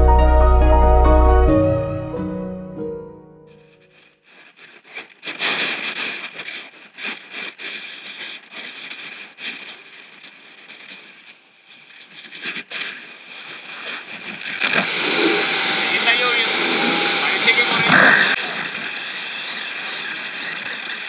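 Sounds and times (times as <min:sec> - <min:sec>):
rushing wind: 0:14.3 - 0:19.4.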